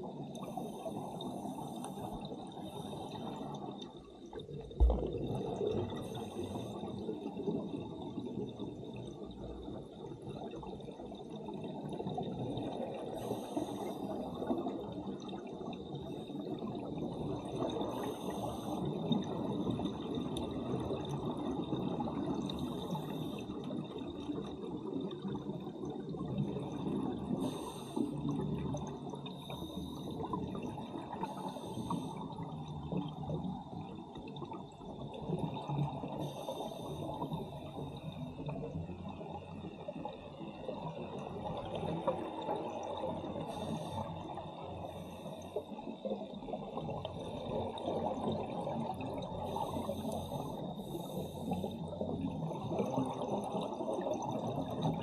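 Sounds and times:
bubbles gurgling underwater: 1.2s - 44.8s, 45.7s - 55.0s.

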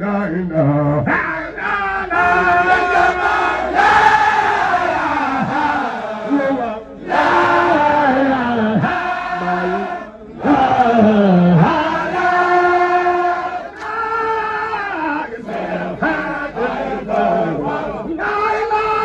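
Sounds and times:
man chanting: 0.0s - 2.9s, 5.0s - 13.4s.

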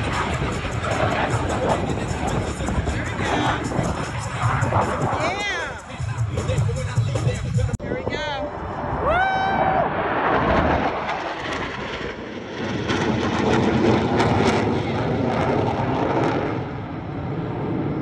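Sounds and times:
jet engines roaring: 0.0s - 18.0s.

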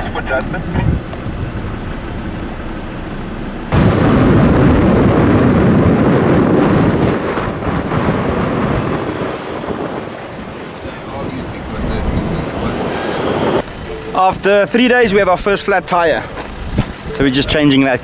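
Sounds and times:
wind rumbling on microphone: 0.0s - 2.4s, 3.7s - 17.7s
vehicle driving on gravel: 0.0s - 18.0s.

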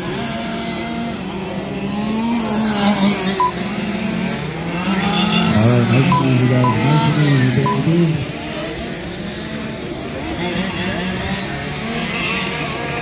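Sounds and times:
small two-stroke engines running: 0.0s - 13.0s
short electronic beep: 6.0s - 8.0s.

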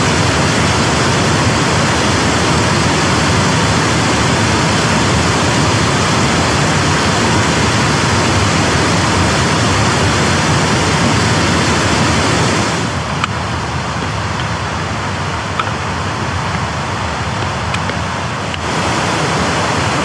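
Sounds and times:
mountain stream rushing: 0.0s - 20.0s.

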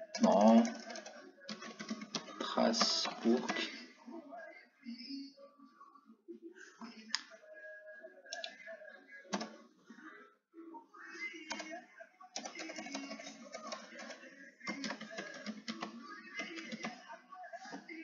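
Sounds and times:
faint background music: 0.0s - 18.0s
keyboard keys clicking: 12.4s - 16.9s.

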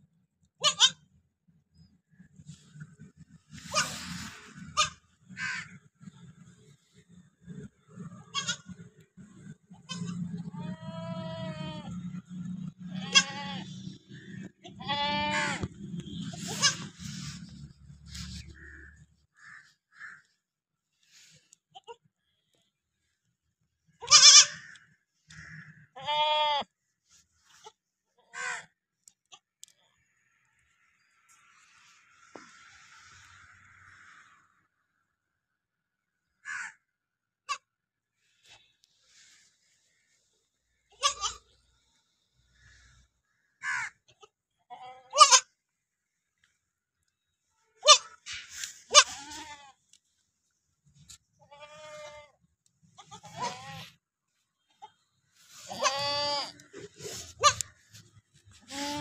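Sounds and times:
goats bleating: 9.8s - 12.0s, 12.9s - 13.8s, 14.6s - 15.7s, 26.0s - 26.7s, 48.9s - 49.8s, 51.5s - 52.3s, 53.0s - 53.9s, 55.7s - 57.7s, 58.6s - 59.0s.

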